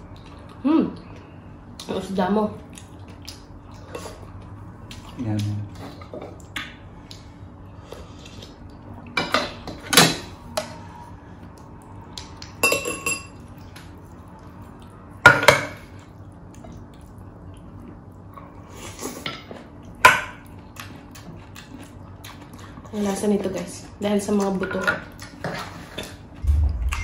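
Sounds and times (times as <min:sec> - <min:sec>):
tableware clinking: 0:12.6 - 0:13.3.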